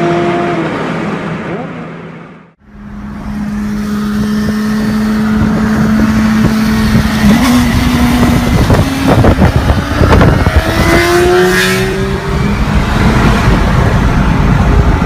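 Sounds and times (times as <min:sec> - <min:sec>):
motorcycle engine revving: 0:02.7 - 0:14.6
wind rumble on microphone: 0:04.0 - 0:15.0.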